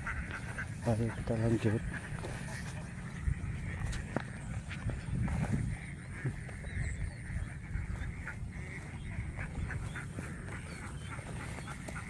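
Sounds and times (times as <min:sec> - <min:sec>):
ducks quacking: 0:00.0 - 0:12.0.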